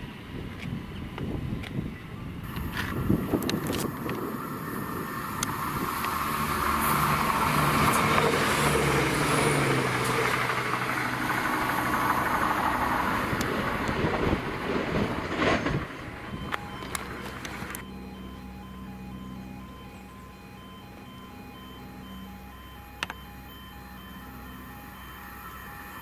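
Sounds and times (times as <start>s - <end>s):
vehicle passing by: 2.5s - 22.7s.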